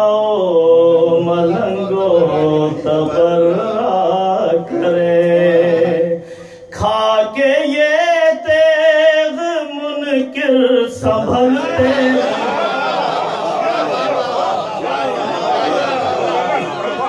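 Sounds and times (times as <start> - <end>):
man singing in a chanting style: 0.0 - 12.3.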